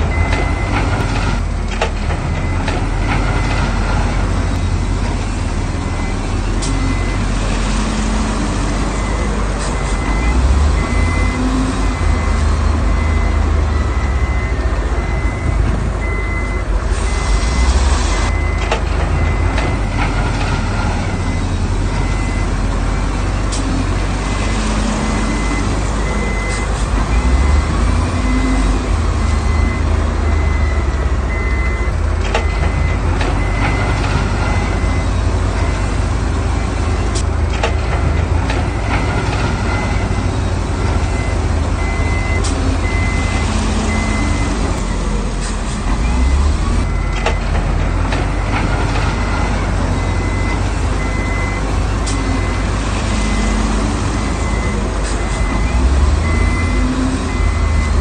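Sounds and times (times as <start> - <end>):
reversing alarm beeping: 0.0 - 1.4, 5.8 - 7.4, 8.9 - 22.6, 24.4 - 36.0, 38.2 - 40.4, 41.0 - 45.2, 46.0 - 47.4, 48.3 - 58.0
diesel construction machinery running: 0.0 - 58.0.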